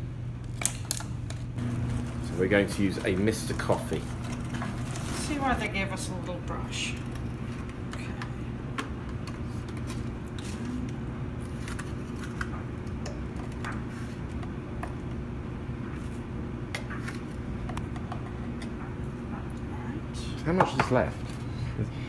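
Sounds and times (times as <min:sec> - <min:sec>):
low hum: 0:00.0 - 0:20.4.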